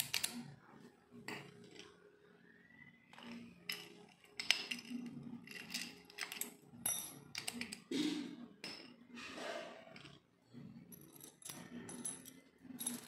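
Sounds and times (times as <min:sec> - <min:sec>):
padlock and keys clinking: 0:03.7 - 0:07.8, 0:11.0 - 0:13.0.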